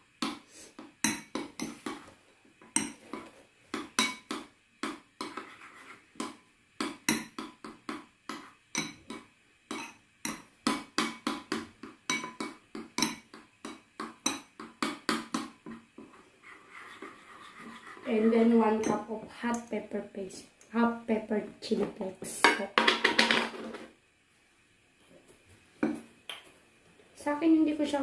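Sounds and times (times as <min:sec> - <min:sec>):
metal spoon scraping and knocking bowl: 0:02.7 - 0:19.1.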